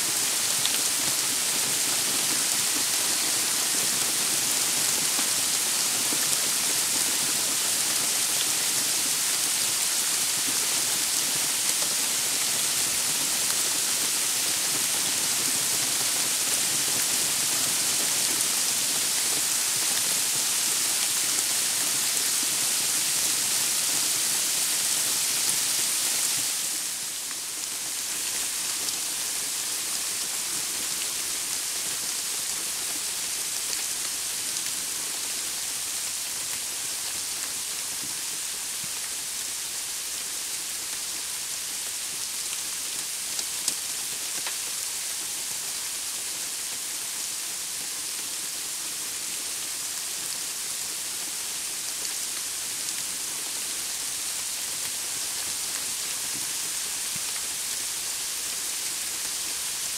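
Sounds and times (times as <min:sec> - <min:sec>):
rain and sleet falling: 0:00.0 - 0:59.9.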